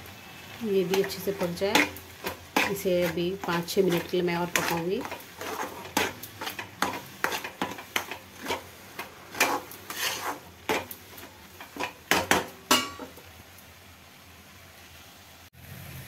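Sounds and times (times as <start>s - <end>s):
spatula scraping steel pan: 0.7s - 13.2s.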